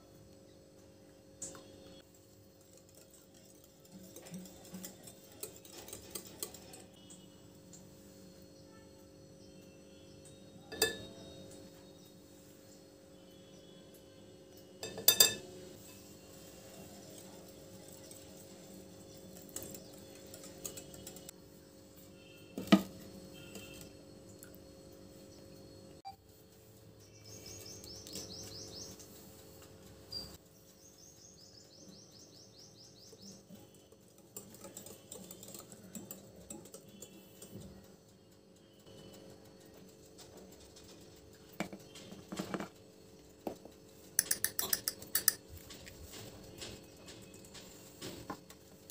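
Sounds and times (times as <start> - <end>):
whisk scraping glass bowl: 2.5 - 7.2, 14.8 - 21.3.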